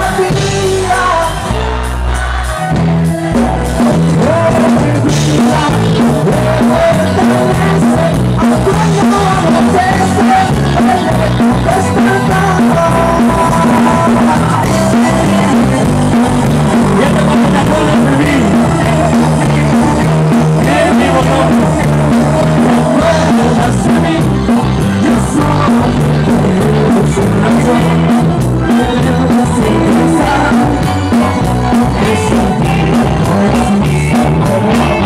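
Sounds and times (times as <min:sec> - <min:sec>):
live band playing: 0:00.0 - 0:35.0
person singing: 0:00.0 - 0:35.0.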